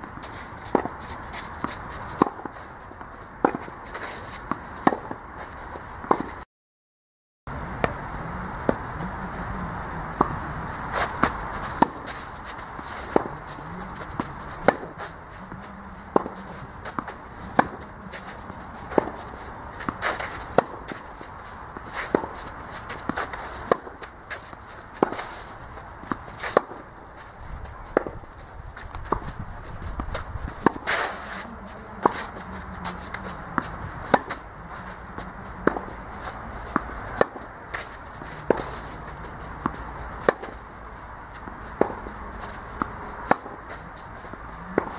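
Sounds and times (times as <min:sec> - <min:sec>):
tennis ball hits and bounces: 0:00.0 - 0:06.4, 0:10.1 - 0:44.9
shoes scuffing on clay: 0:10.2 - 0:44.9.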